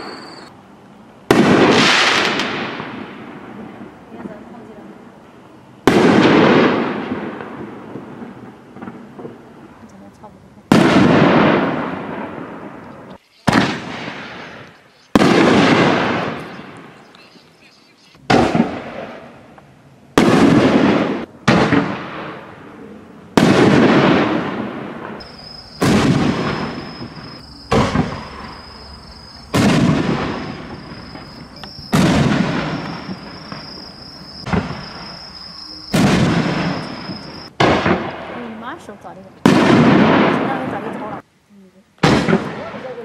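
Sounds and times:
firework shells booming: 1.3s - 4.4s, 5.8s - 9.4s, 10.7s - 12.8s, 13.4s - 17.0s, 18.2s - 22.7s, 23.3s - 38.6s, 39.4s - 41.0s, 42.0s - 43.0s
thin high tone: 30.5s - 32.0s, 32.8s - 37.5s.

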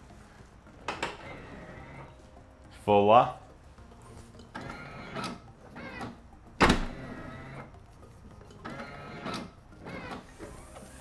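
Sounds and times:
electric actuator motor whirring: 0.9s - 2.1s, 4.5s - 7.7s, 8.6s - 11.0s
latch clunk: 5.2s - 7.1s.

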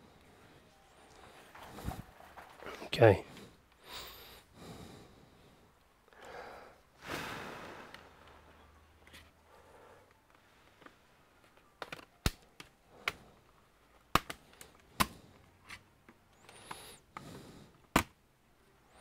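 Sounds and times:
plastic clips snapping: 10.3s - 13.3s, 13.9s - 16.8s, 17.8s - 18.2s.

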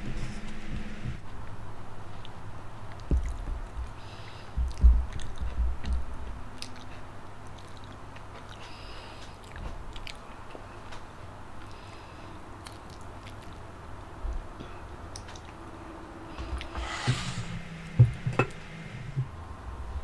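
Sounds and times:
close chewing of food: 4.6s - 11.0s, 12.5s - 13.9s.

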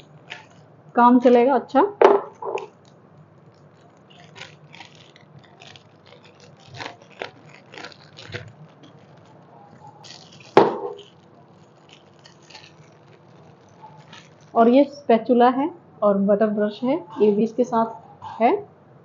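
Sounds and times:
plastic packaging crinkling: 0.0s - 15.0s.

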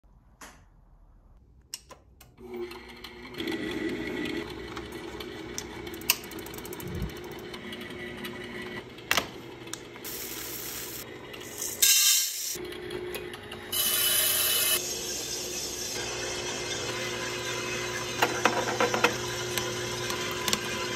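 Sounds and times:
coffee roaster motors humming: 2.5s - 20.9s
mechanical rattling and clicking: 5.9s - 7.5s
coffee beans poured into hopper: 10.1s - 12.5s.

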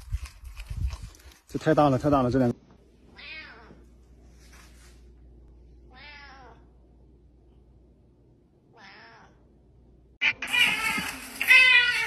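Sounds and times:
cat meowing faintly: 5.9s - 6.6s.

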